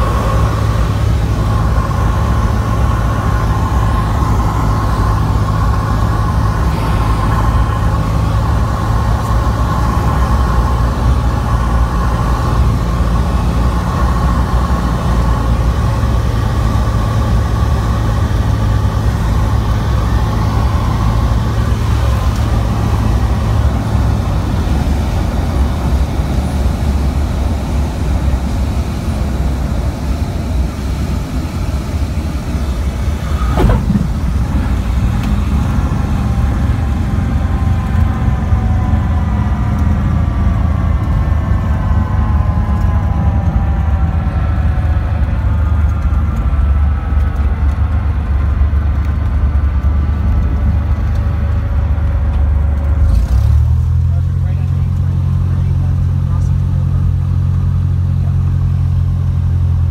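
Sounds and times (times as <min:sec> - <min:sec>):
rushing air: 0:00.0 - 0:41.0
propeller engine drone: 0:00.0 - 0:59.9
sharp knock: 0:33.4 - 0:34.3.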